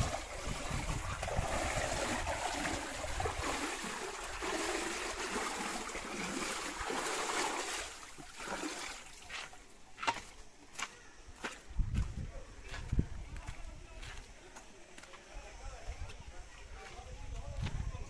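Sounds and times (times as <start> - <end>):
wind on microphone: 0.0 - 3.6, 11.7 - 14.0, 15.8 - 18.0.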